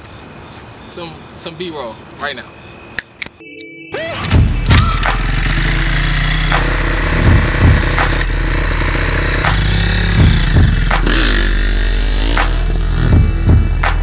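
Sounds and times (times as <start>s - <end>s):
dirt bike engine running: 4.3s - 14.0s.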